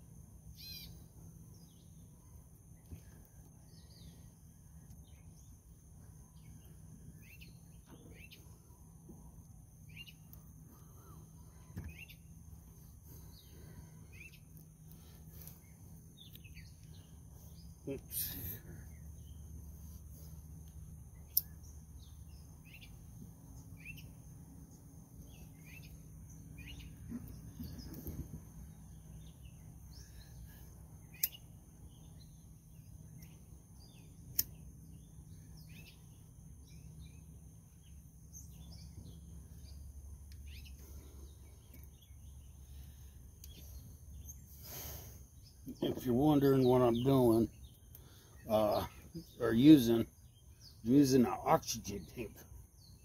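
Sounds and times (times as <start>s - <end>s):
insect drone: 0.0s - 53.0s
low steady hum: 0.0s - 53.0s
bird chirps: 0.2s - 53.0s
sharp clicks: 31.2s - 31.4s, 34.3s - 34.6s.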